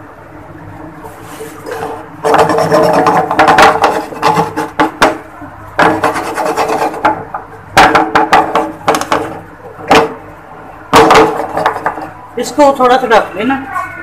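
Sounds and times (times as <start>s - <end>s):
faint steady hum: 0.0s - 14.0s
rough scraping: 5.9s - 7.0s.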